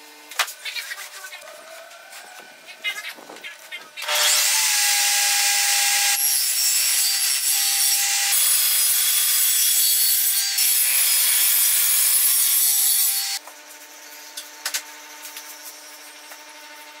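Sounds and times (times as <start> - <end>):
table saw cutting wood: 4.0 - 17.0.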